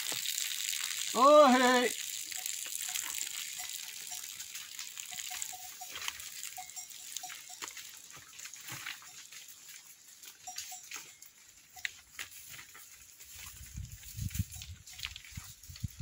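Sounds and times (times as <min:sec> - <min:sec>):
goat bells clinking: 0:00.0 - 0:16.0.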